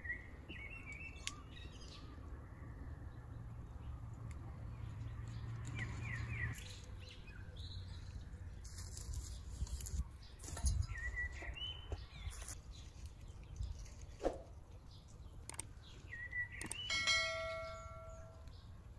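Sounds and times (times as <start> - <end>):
small birds chirping: 0.0 - 18.9
rustling: 7.9 - 14.9.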